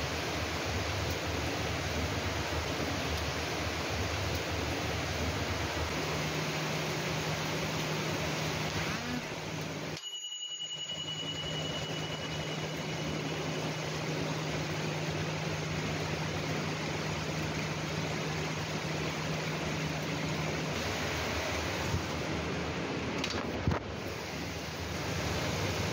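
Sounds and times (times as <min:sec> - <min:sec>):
heavy rain pouring: 0:00.0 - 0:10.0, 0:11.1 - 0:25.9
thin high tone: 0:09.9 - 0:14.7.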